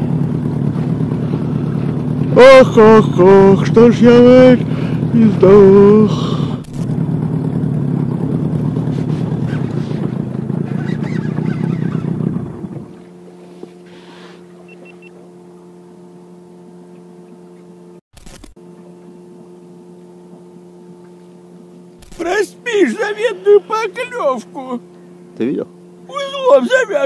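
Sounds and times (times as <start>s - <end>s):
water noise: 0.0s - 17.7s
faint steady hum: 0.0s - 27.0s
outboard motor running: 0.0s - 27.0s
wind: 0.0s - 27.0s.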